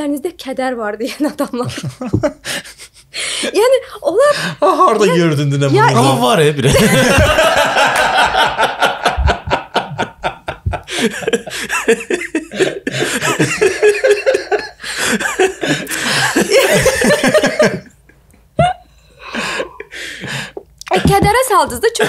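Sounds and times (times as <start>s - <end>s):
people laughing hard: 6.2s - 22.0s.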